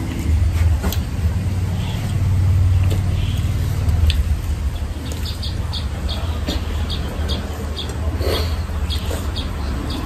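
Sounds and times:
small bird chirping: 2.9 - 10.0.

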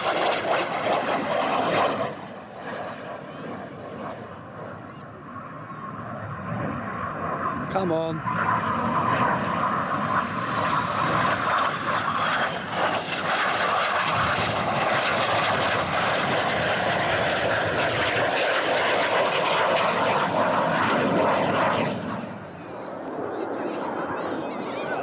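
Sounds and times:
jet engine flyby roar: 0.0 - 25.0.

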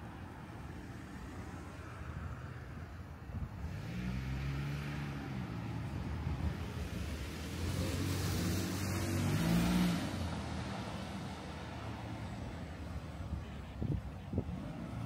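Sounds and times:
tyre noise of passing car: 0.0 - 15.0.

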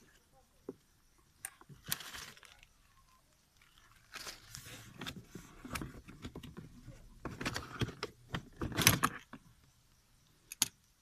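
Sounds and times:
rubber hose rustling: 3.5 - 6.2.

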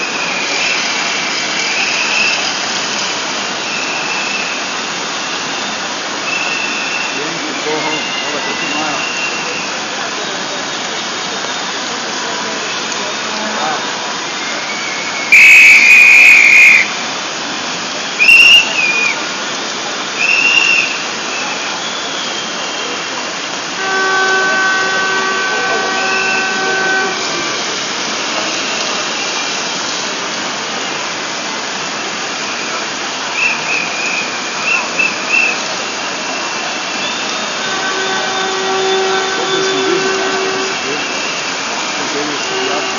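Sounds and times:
shrill whistle blasts: 0.0 - 2.5, 3.6 - 4.8, 5.5 - 9.8, 14.4 - 17.0, 18.2 - 19.2, 20.2 - 23.1, 23.8 - 27.2, 32.5 - 41.5
crowd noise: 0.0 - 42.9
horn steady note: 23.7 - 28.9, 36.0 - 42.9.

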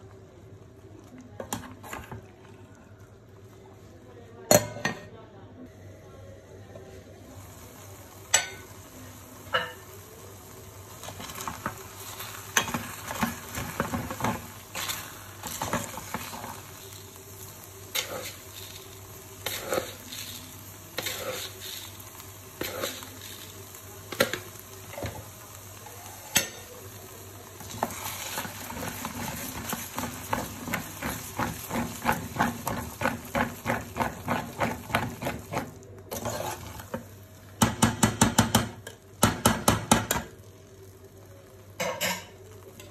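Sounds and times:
simmering pot hiss: 6.0 - 42.9
metal spoon scraping a pot: 27.7 - 36.9.

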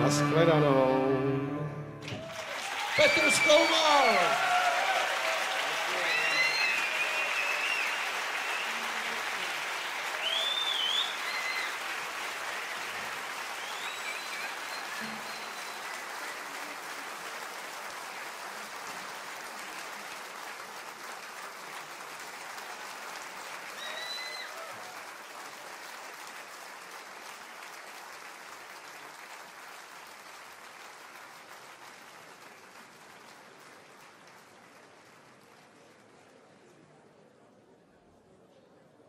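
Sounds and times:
audience applauding: 2.0 - 36.8.

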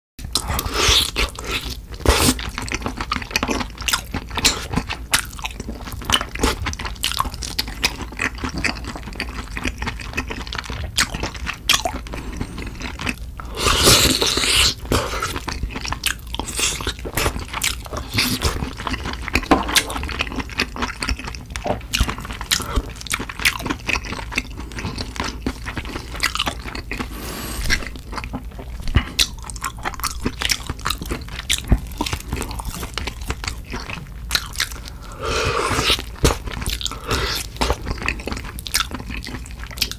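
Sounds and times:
wet chewing and biting: 0.3 - 39.9.

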